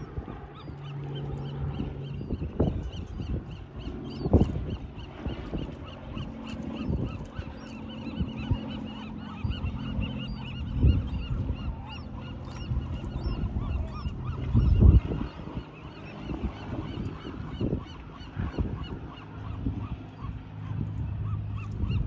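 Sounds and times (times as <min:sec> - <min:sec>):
seabird calls: 0:00.0 - 0:22.0
steady low hum: 0:00.0 - 0:22.0.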